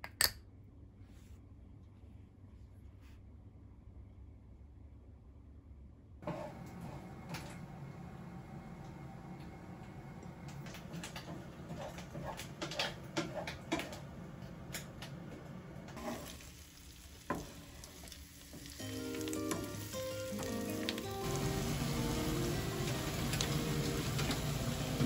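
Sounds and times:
fat crackling in a frying pan: 16.0 - 25.0
onions sizzling in oil: 16.0 - 25.0
music: 18.7 - 25.0.

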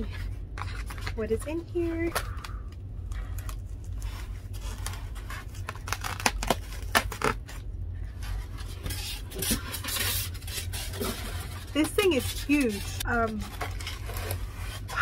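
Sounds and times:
styrofoam rustling: 3.8 - 15.0
styrofoam packing scraping and knocking: 4.0 - 15.0.

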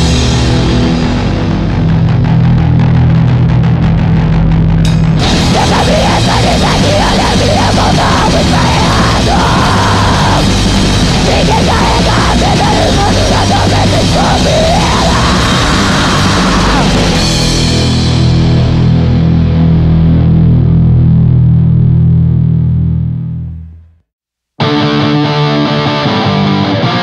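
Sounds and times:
hardcore punk band playing: 0.0 - 23.0, 24.6 - 27.0
shouted vocals: 5.2 - 17.2.

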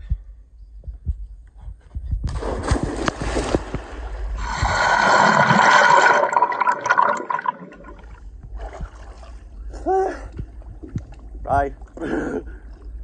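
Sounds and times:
splash into river: 2.3 - 4.4
rushing bubbling water underwater: 2.5 - 8.2.

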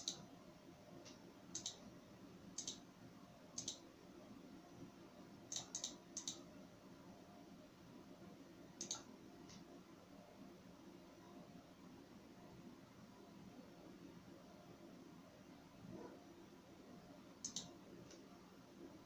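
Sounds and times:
computer mouse clicking: 0.0 - 0.3, 1.0 - 1.9, 2.6 - 2.8, 3.6 - 3.9, 5.5 - 6.5, 8.8 - 9.7, 17.4 - 18.3
faint background hum: 0.0 - 19.0.

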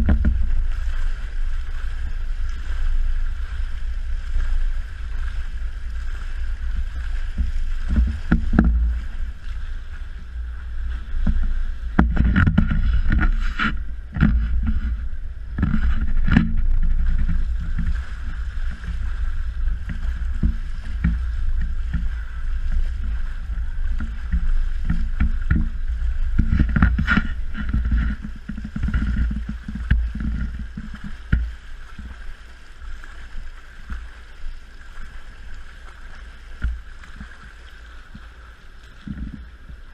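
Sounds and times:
constant low rumble: 0.0 - 39.9
water splashing from swimming: 0.0 - 39.9.

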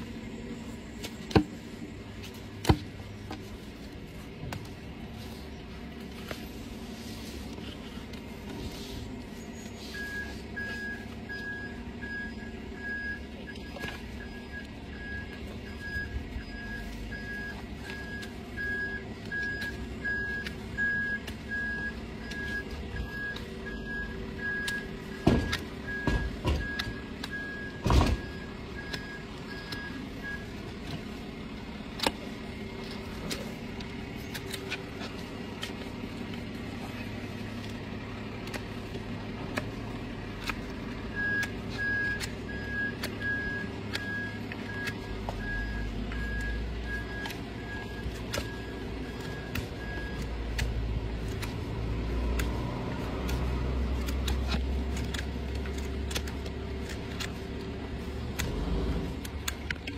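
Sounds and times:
low engine hum: 0.0 - 59.9
reversing alarm beeping: 9.8 - 30.7, 41.1 - 50.4.

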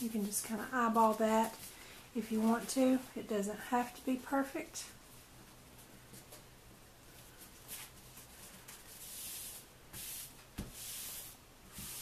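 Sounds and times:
palms swishing over paper: 7.4 - 12.0.

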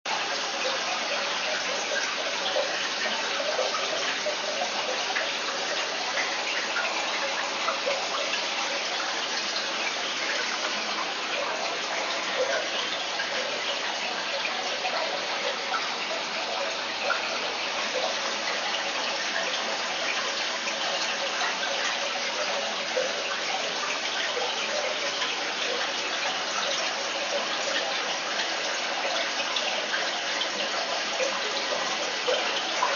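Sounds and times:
aquarium water splashing: 0.1 - 32.9.

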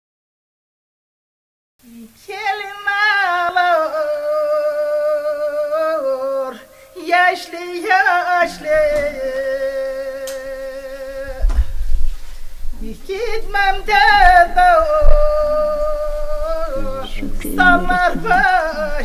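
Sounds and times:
woman singing unaccompanied: 1.8 - 11.5, 12.8 - 19.0.

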